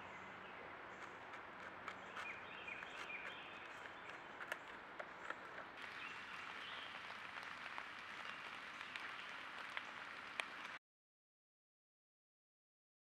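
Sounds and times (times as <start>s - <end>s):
steady outdoor hiss: 0.0s - 10.8s
sharp clicks and ticks: 1.0s - 5.8s.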